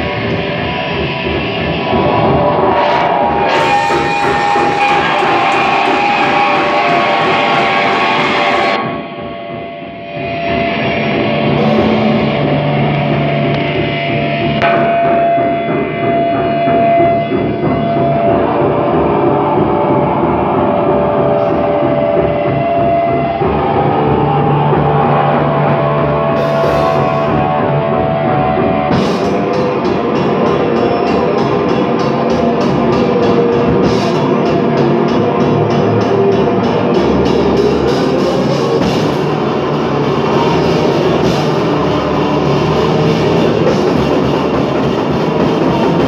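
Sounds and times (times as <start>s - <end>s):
electric guitars: 0.0s - 9.4s
drum kit: 0.0s - 9.6s, 10.2s - 46.0s.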